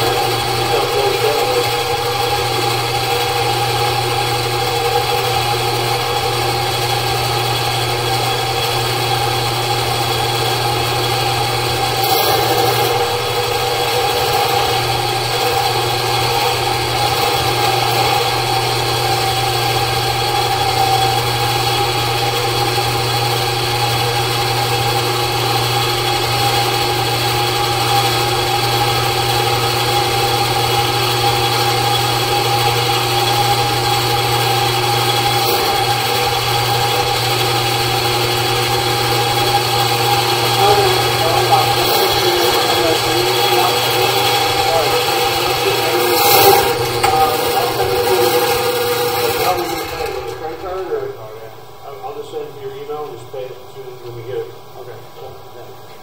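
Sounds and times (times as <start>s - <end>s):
drain machine motor running: 0.0s - 56.0s.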